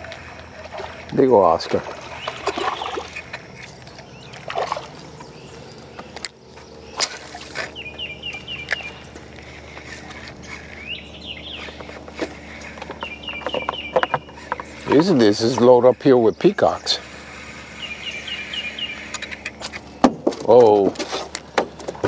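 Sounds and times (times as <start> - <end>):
steady low hum: 0.0 - 22.0
bird calling in high notes: 2.1 - 20.0.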